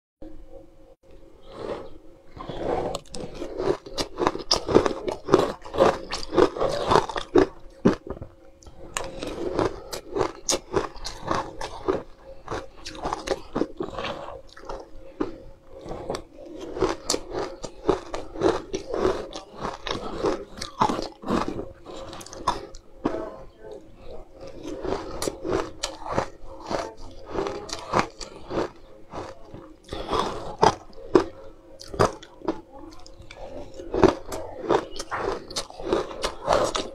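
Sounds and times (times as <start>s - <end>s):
person crunching ice flakes: 2.3s - 36.9s.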